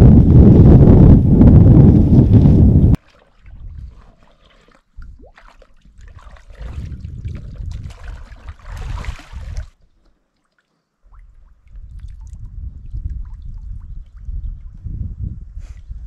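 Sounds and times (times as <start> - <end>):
water gurgling and sloshing: 2.9 - 14.9.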